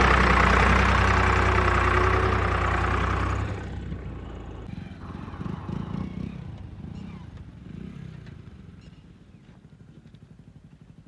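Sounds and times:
tractor diesel engine working hard: 0.0s - 6.2s
motorcycle engine over rough ground: 0.0s - 11.0s.

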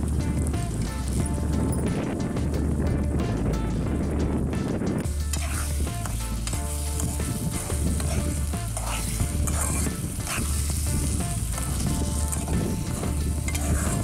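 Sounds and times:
curry sizzling in a pan: 0.0s - 1.5s, 5.0s - 14.0s
spatula scraping metal pan: 5.1s - 14.0s.

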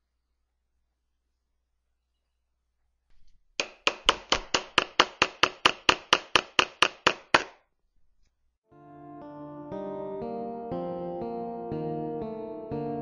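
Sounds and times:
hammer striking a nail: 3.6s - 7.6s.

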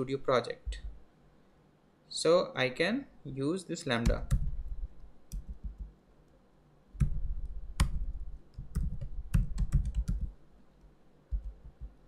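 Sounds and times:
typing on a keyboard: 7.8s - 10.3s, 11.3s - 12.0s.

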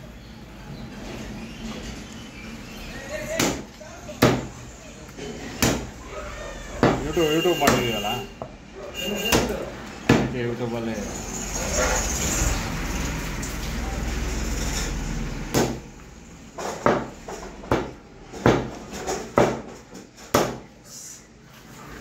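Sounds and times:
cleaver chopping on wooden block: 3.4s - 4.5s, 5.6s - 5.9s.

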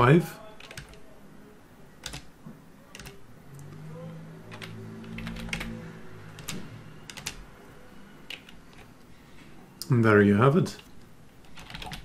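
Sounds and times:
keyboard keystrokes: 0.6s - 1.0s, 2.0s - 2.3s, 2.9s - 3.8s, 4.5s - 5.8s, 6.4s - 7.5s, 8.3s - 8.9s, 11.4s - 12.0s.

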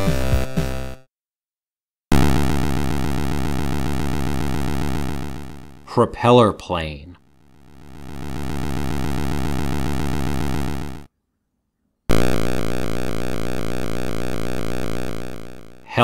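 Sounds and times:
synthesized helicopter buzz: 2.1s - 5.9s, 7.3s - 11.1s, 12.1s - 16.0s
synthesized propeller plane buzz: 2.1s - 5.9s, 7.3s - 11.1s, 12.1s - 15.9s.

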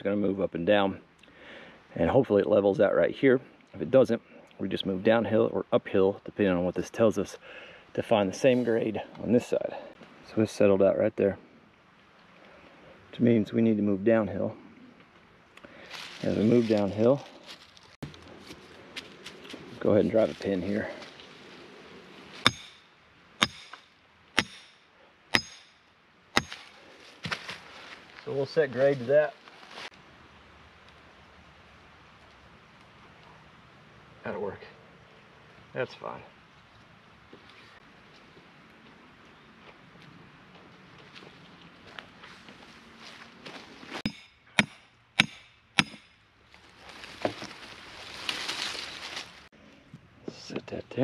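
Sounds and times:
hammer striking wooden stake: 22.4s - 27.4s, 44.0s - 46.2s.

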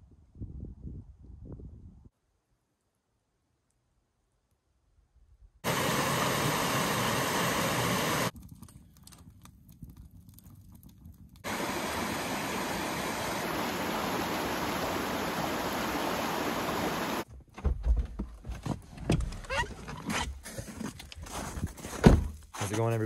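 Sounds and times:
creek rushing over rocks: 5.6s - 8.3s, 11.4s - 17.2s.

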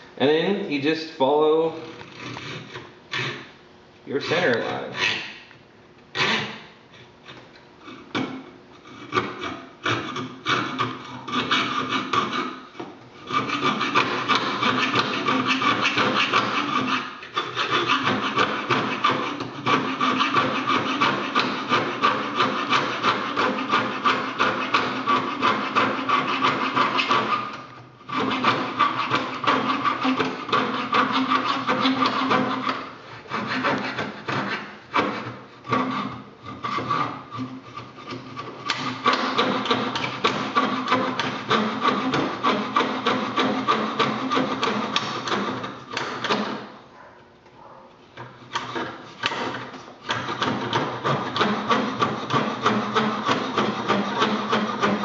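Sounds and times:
coping saw cutting wood: 0.2s - 3.5s, 4.1s - 5.4s, 6.2s - 7.1s, 8.2s - 12.6s, 13.2s - 46.7s, 48.2s - 55.0s.

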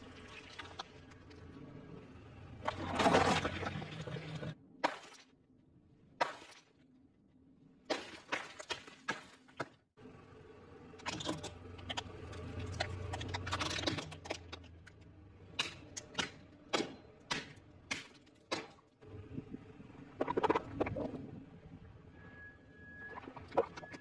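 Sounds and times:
low steady hum: 19.0s - 23.6s.

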